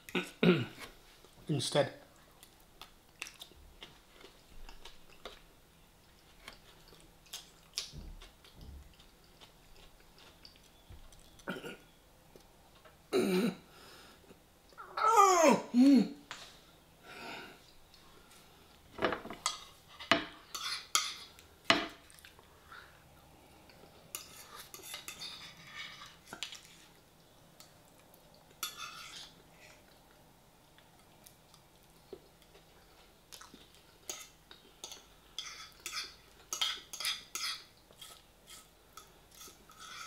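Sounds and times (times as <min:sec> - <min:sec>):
metal fork scraping a plate: 0:24.1 - 0:26.2, 0:28.6 - 0:29.3, 0:39.3 - 0:40.0.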